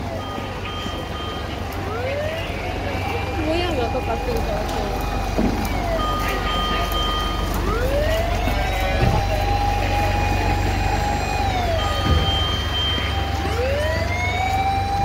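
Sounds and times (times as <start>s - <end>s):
fire engine siren wailing: 0.0s - 15.0s.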